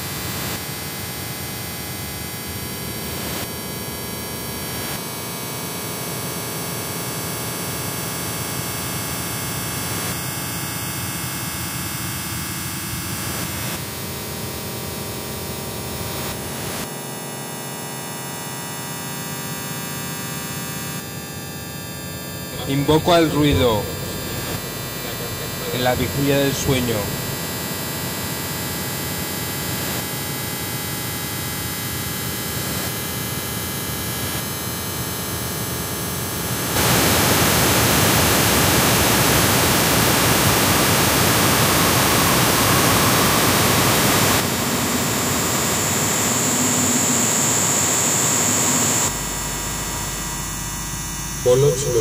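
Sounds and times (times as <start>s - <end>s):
static hiss noise music: 22.5s - 27.4s.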